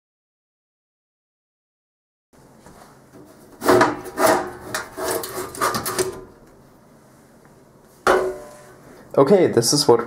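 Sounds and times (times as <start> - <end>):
metal scraping on metal: 3.6 - 6.2.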